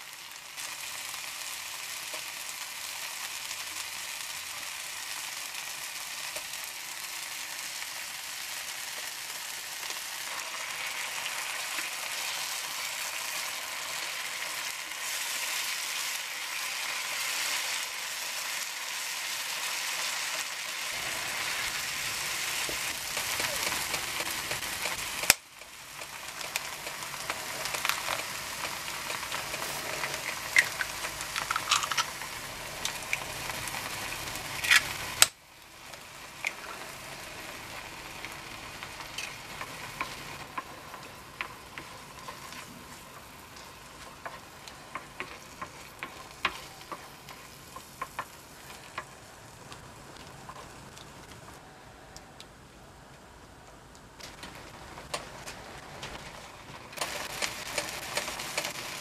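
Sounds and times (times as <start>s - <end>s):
vegetables sizzling in oil: 0.0s - 51.6s, 54.6s - 59.0s
wooden spatula stirring: 36.6s - 51.3s.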